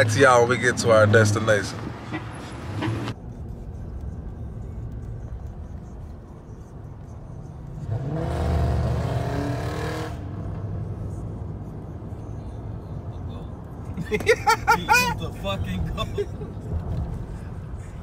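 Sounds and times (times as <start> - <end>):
road rumble inside car: 1.4 - 18.0
car engine revving: 7.7 - 11.6.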